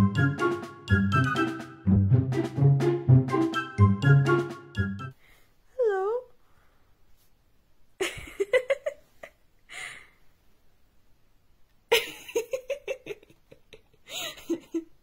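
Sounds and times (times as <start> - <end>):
person giggling softly: 11.9 - 15.0.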